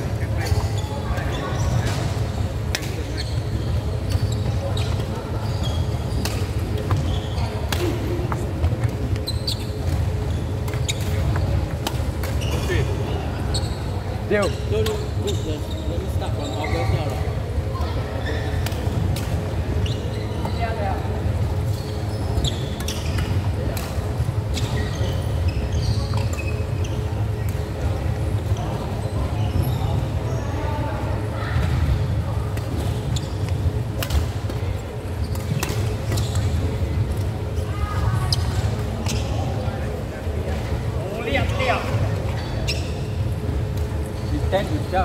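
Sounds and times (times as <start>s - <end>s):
shoe squeaks on court floor: 0.3s - 7.8s, 9.1s - 17.3s, 18.1s - 18.6s, 19.8s - 20.8s, 21.6s - 23.4s, 24.5s - 27.8s, 32.6s - 34.3s, 35.1s - 36.8s, 37.4s - 40.0s, 41.2s - 43.3s, 44.0s - 45.0s.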